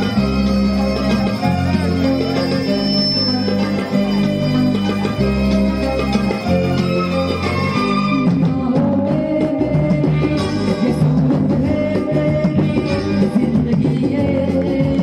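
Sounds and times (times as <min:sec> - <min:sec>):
man singing into microphone: 0:08.2 - 0:15.0.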